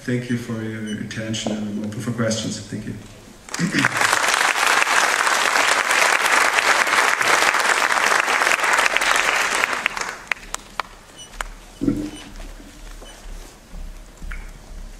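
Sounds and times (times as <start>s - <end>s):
audience applauding: 3.5s - 11.6s.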